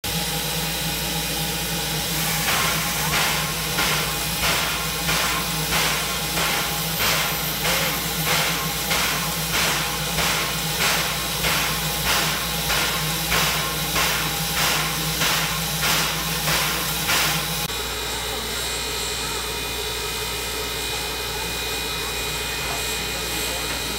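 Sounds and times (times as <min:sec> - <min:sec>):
steam puffs: 0:00.1 - 0:17.7
steam locomotive hissing: 0:00.1 - 0:23.9.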